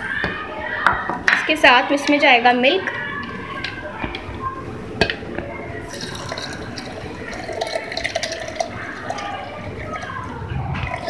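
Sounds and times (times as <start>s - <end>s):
milk pouring into blender jar: 5.8s - 11.0s.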